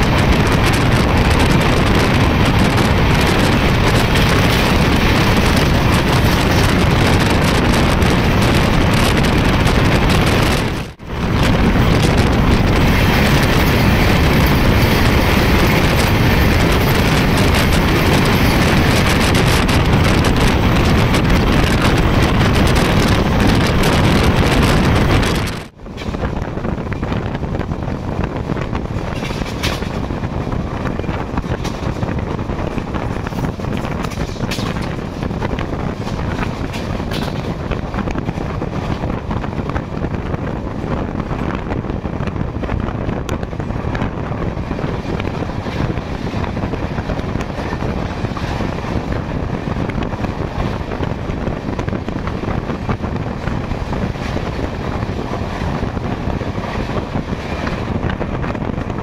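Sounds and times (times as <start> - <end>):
rush of wind: 0.0 - 59.0
train running at speed: 0.0 - 59.0.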